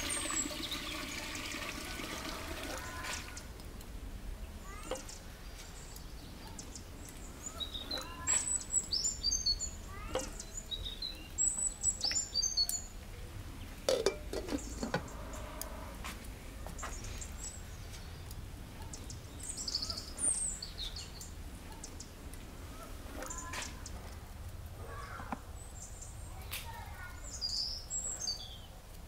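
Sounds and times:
small birds chirping: 0.0s - 1.6s, 2.2s - 29.0s
glass lid clinking on pot: 13.9s - 15.0s.

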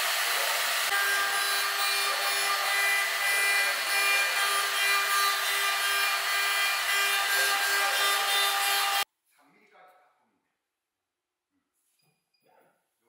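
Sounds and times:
hiss of wood cutting: 0.0s - 9.0s
router spindle whine: 0.0s - 9.0s.

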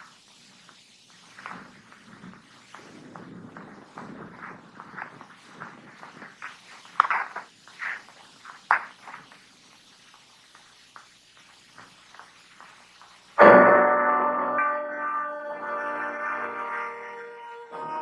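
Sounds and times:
footsteps crunching on rocky ground: 1.2s - 9.5s.

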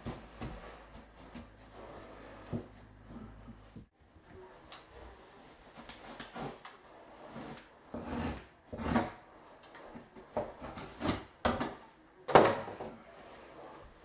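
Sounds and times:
knocks and scrapes on boards: 6.1s - 11.8s.

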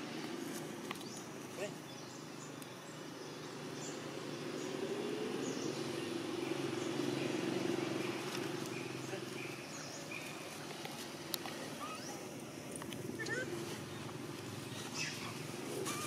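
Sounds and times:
steady engine hum: 0.0s - 16.0s
faint bird chirps: 11.8s - 12.3s.

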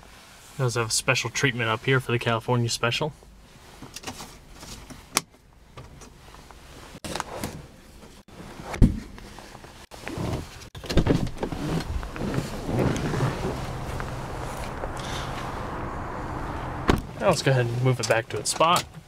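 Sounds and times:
power window motor running: 11.3s - 17.0s
sun visor thump: 16.6s - 17.2s.

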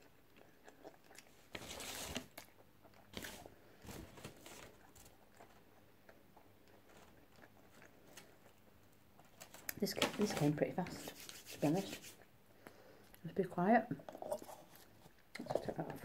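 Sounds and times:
person chewing crunchy food: 0.0s - 9.8s.

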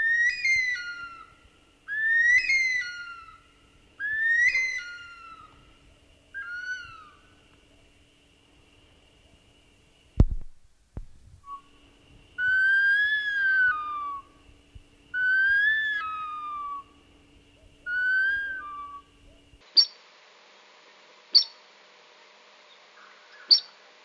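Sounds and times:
eerie whistled bird wails: 0.0s - 5.6s, 6.3s - 7.4s, 12.4s - 14.4s, 15.1s - 17.0s, 17.8s - 19.4s
short sharp high bird calls: 0.0s - 5.6s, 19.8s - 20.0s, 21.3s - 21.6s, 23.0s - 23.8s.

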